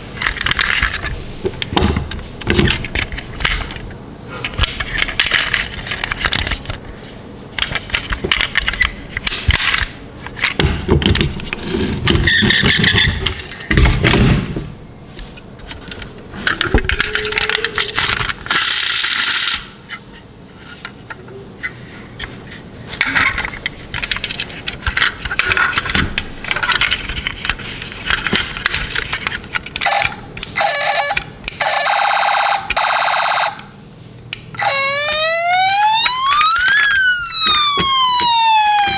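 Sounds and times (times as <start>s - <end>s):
toy cars clicking and scraping: 7.6s - 13.6s, 15.7s - 20.0s, 22.9s - 31.3s.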